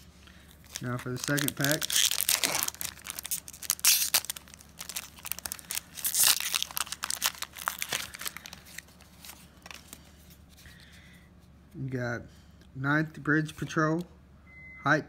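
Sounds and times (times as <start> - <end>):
foil wrapper crinkling and tearing: 0.4 - 10.0.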